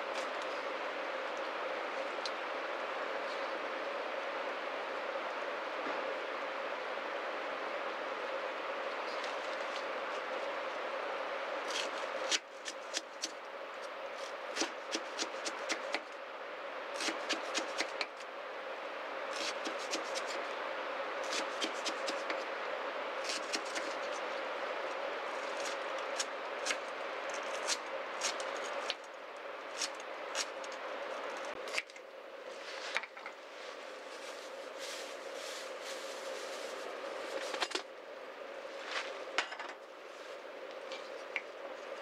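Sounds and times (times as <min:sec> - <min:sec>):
steady hiss: 0:00.0 - 0:42.0.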